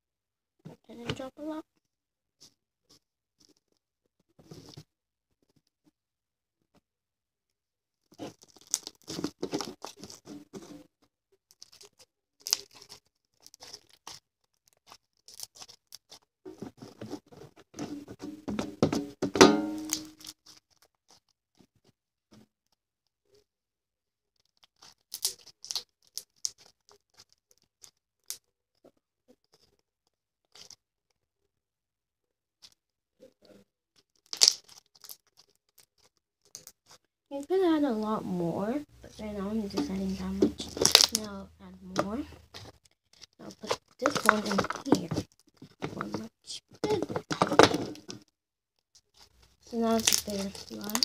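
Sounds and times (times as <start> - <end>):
slime squelching and crackling: 8.0 - 18.1, 19.8 - 21.9, 24.4 - 29.8, 30.4 - 30.8, 34.0 - 38.2, 38.9 - 48.3, 49.0 - 51.0.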